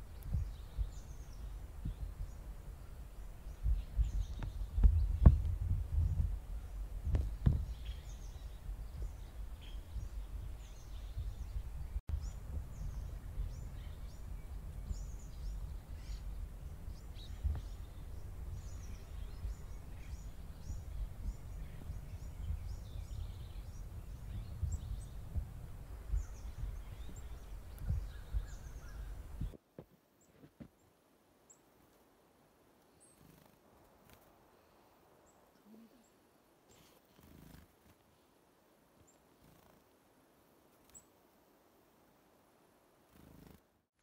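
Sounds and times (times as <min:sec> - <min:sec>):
birds chirping: 0:00.0 - 0:29.6
low microphone rumble: 0:00.0 - 0:29.6.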